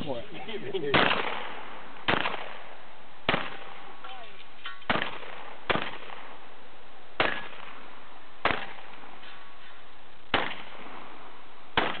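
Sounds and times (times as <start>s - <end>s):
steady background hiss: 0.0s - 12.0s
shotgun shots: 0.9s - 4.0s, 4.8s - 6.5s, 7.2s - 9.4s, 10.3s - 11.2s, 11.8s - 12.0s.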